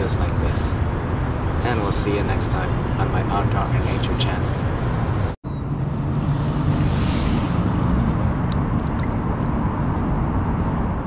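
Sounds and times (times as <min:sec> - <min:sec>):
wind rumbling on microphone: 0:00.0 - 0:11.0.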